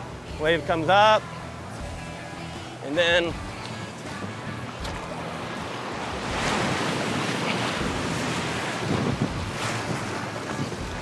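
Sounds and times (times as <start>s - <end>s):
ocean surf washing up beach: 2.9s - 11.0s
wind buffeting microphone: 5.0s - 11.0s.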